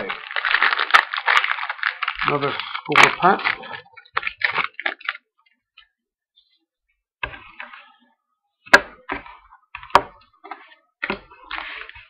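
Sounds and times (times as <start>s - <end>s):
cards and wrapper rustling: 0.0s - 5.3s.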